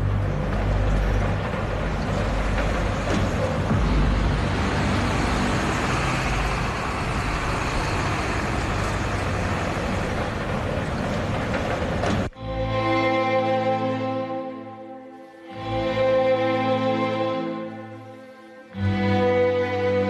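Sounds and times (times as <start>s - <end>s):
music: 0.0s - 7.0s, 10.0s - 20.0s
bus engine passing: 0.0s - 14.4s.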